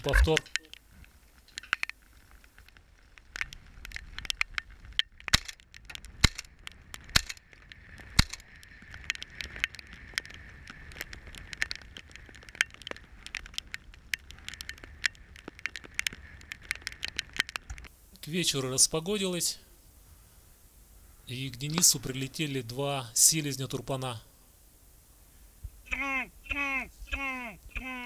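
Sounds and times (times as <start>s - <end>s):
camera housing crackling and clicking: 0.0s - 17.9s.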